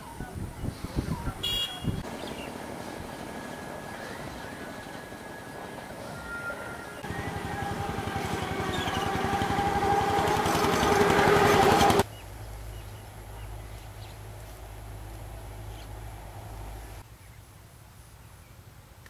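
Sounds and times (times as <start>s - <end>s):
small engine running: 6.6s - 12.1s.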